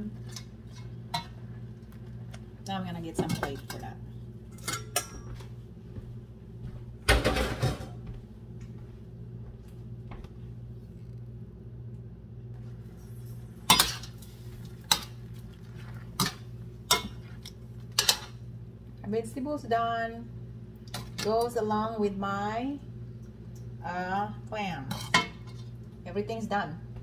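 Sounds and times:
steady low hum: 0:00.0 - 0:27.0
cookware clattering: 0:16.2 - 0:18.4.

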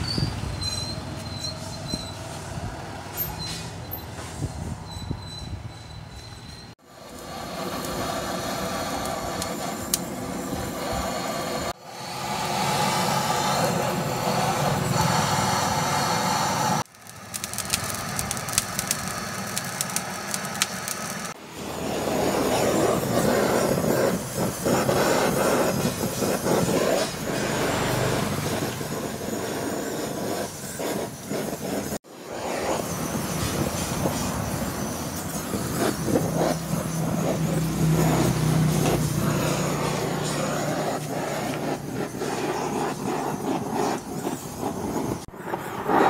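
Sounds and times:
torch flame hissing: 0:06.8 - 0:46.0
charcoal crackling: 0:07.0 - 0:10.1, 0:16.3 - 0:44.9.

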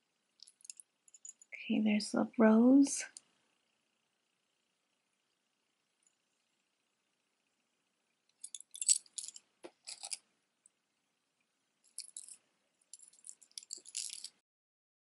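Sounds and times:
metal chain necklace jingling: 0:08.4 - 0:10.2, 0:12.0 - 0:12.4, 0:13.0 - 0:14.4.

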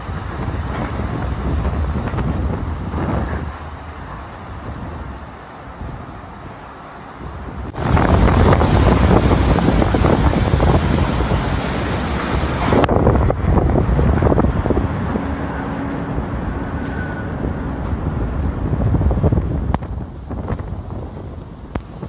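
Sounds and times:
strong wind buffeting microphone: 0:00.0 - 0:22.0.

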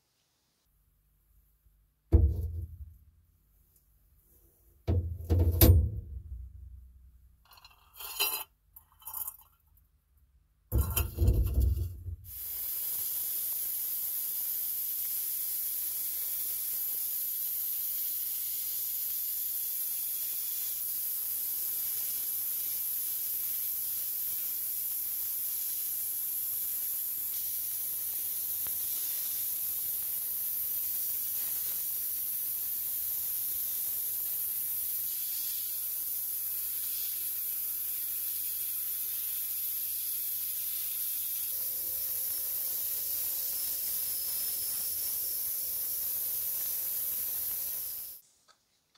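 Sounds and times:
sandblaster hissing: 0:10.8 - 0:48.2.

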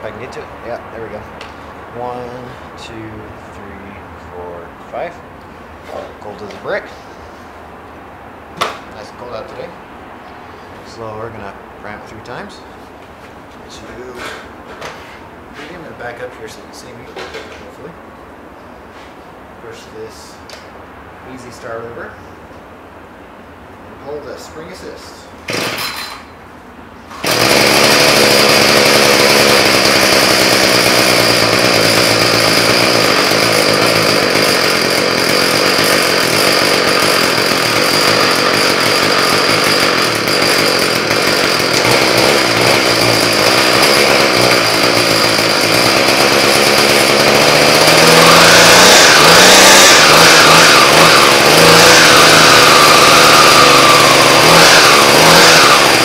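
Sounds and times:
string trimmer engine revving: 0:25.5 - 0:26.1, 0:27.1 - 0:56.0
starter cord pull: 0:25.5 - 0:26.2, 0:27.2 - 0:56.0.

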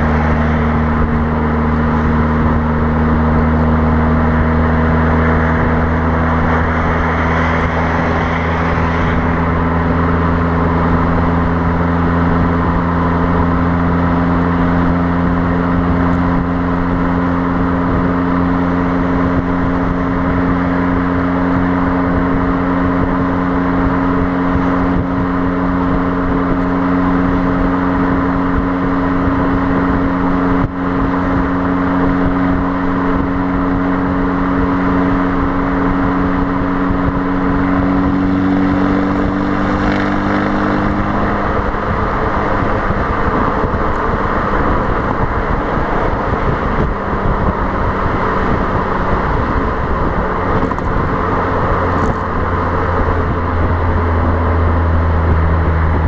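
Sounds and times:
car exhaust drone: 0:00.0 - 0:56.0
road noise: 0:00.0 - 0:56.0
wind noise on microphone: 0:00.0 - 0:56.0.

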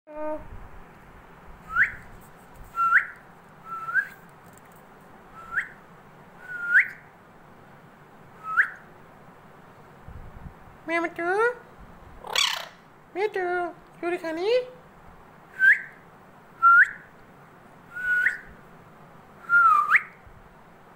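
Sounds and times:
parakeet whistling: 0:08.4 - 0:08.8, 0:12.3 - 0:12.8.

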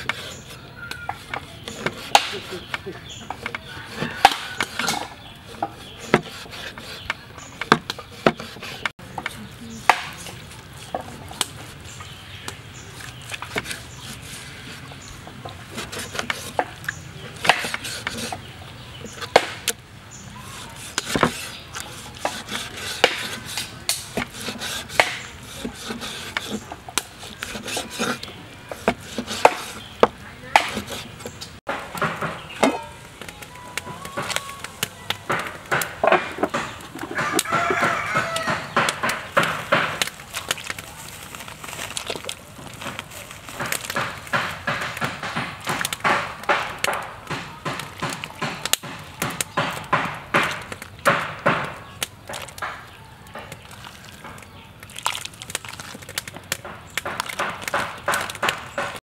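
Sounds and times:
cleaver chopping on wooden board: 0:01.0 - 0:11.6, 0:15.7 - 0:19.8, 0:20.6 - 0:32.9, 0:35.2 - 0:40.2, 0:43.6 - 0:53.6, 0:56.5 - 0:59.0.

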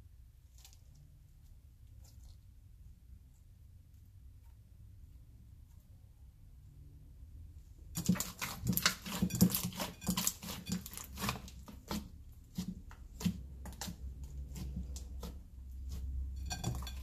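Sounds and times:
slime clicking and squelching: 0:07.9 - 0:17.0.

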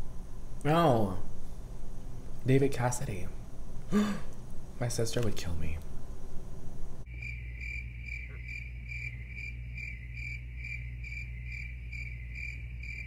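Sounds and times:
low hum: 0:00.0 - 0:13.0
cricket chirping: 0:07.0 - 0:13.0.

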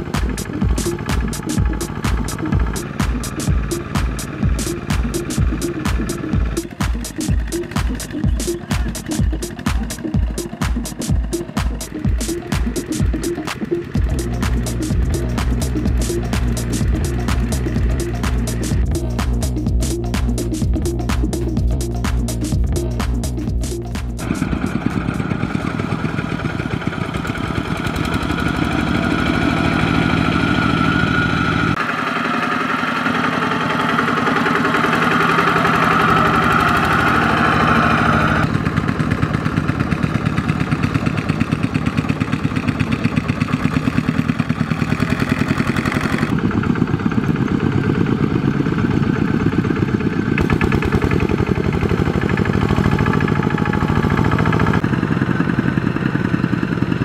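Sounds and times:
diesel engines chugging: 0:00.0 - 0:57.0.

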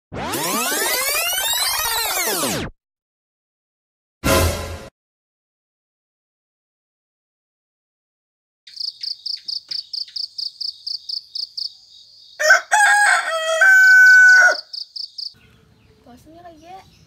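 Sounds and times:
cricket chirping: 0:08.7 - 0:12.5, 0:14.6 - 0:15.4
rooster crowing: 0:12.4 - 0:14.8.

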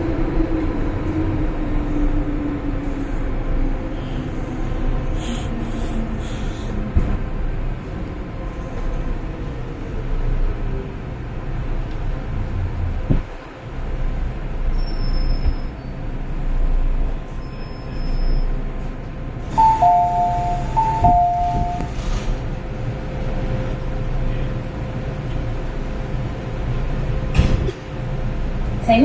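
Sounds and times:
train rumble: 0:00.0 - 0:29.0
high thin brake squeal: 0:14.7 - 0:15.9, 0:17.4 - 0:18.6
electronic two-tone chime: 0:19.6 - 0:21.9.

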